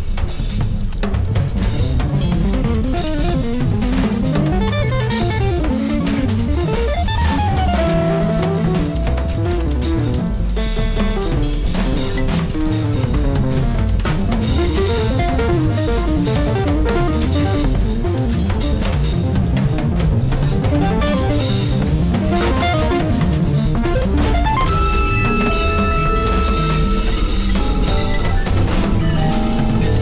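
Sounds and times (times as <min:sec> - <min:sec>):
sampled drum-kit percussion: 0:00.0 - 0:30.0
electric guitar fast runs: 0:01.5 - 0:30.0
held chord: 0:20.7 - 0:30.0.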